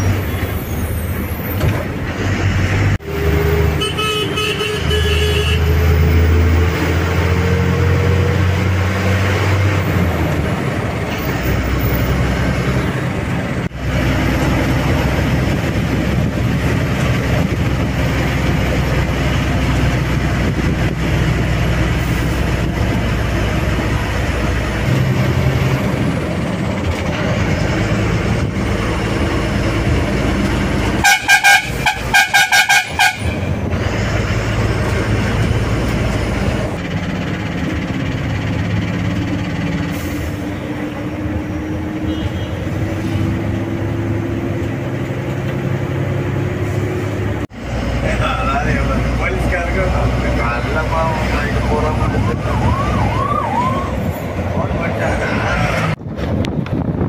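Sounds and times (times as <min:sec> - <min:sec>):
bus engine and road noise: 0:00.0 - 0:57.0
bus horn short beeps: 0:03.8 - 0:05.7, 0:31.0 - 0:33.5, 0:42.1 - 0:42.7.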